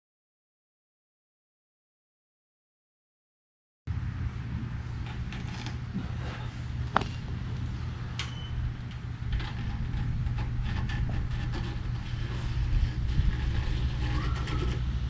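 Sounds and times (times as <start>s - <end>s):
steady low rumble: 3.9s - 15.0s.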